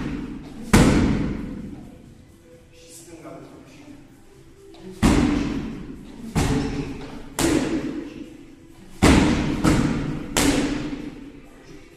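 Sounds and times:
boxing gloves smacking pads: 0:06.4 - 0:08.0, 0:09.0 - 0:11.1.

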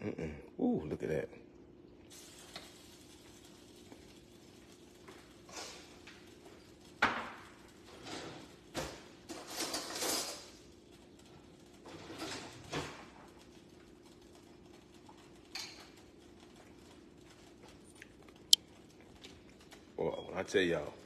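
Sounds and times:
faint hum: 0:00.0 - 0:07.0
kitchen utensils clinking: 0:07.9 - 0:10.6.

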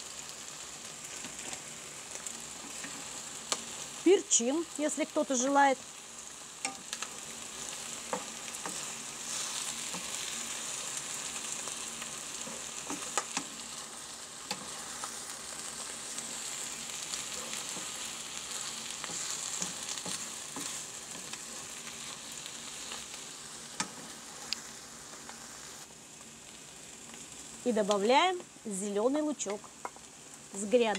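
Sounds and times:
food sizzling in a frying pan: 0:00.0 - 0:30.9
spatula knocking and scraping pan: 0:08.0 - 0:10.2, 0:12.4 - 0:13.5, 0:17.3 - 0:21.7.

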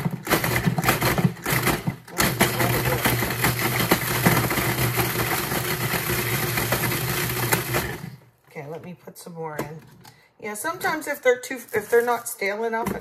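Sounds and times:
bread pieces rattling in bowl: 0:00.0 - 0:08.2, 0:11.5 - 0:12.4
food processor motor running: 0:00.0 - 0:08.2.

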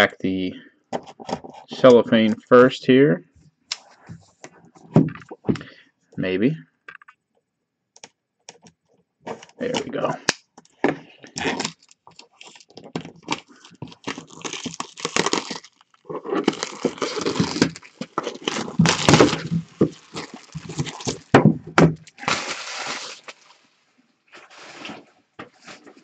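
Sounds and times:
cellophane crinkling and crackling: 0:09.3 - 0:26.0.

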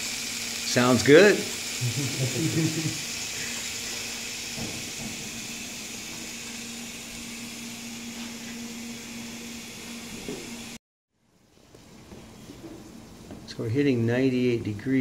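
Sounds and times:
steak sizzling on grill: 0:00.0 - 0:10.8.

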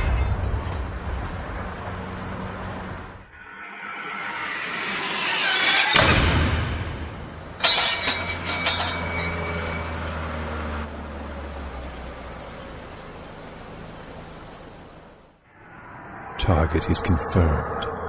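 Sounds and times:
iron gates clanging and screeching: 0:03.4 - 0:10.9.

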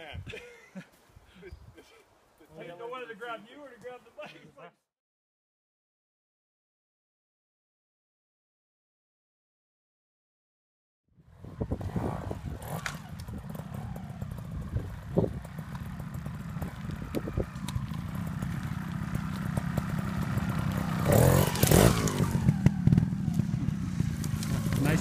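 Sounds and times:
motorcycle engine revving: 0:11.2 - 0:25.0.

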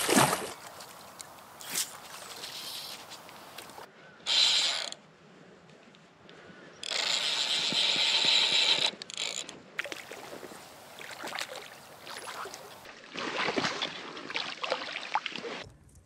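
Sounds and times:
fish splashing in water: 0:00.0 - 0:00.8, 0:09.8 - 0:15.6
fishing reel drag buzzing: 0:04.3 - 0:05.0, 0:06.8 - 0:09.5.

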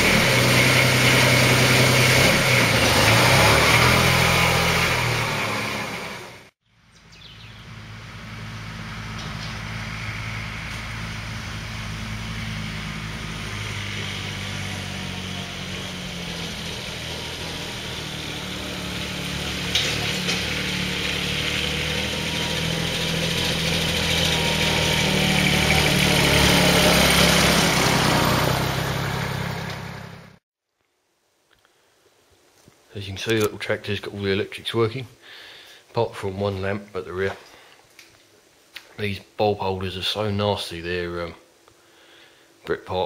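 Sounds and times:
tractor diesel engine running: 0:00.0 - 0:30.4.

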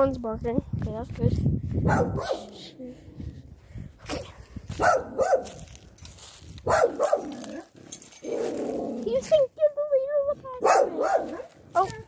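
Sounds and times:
dog barking: 0:01.8 - 0:02.6, 0:04.8 - 0:05.6, 0:06.6 - 0:07.7, 0:10.6 - 0:11.6.

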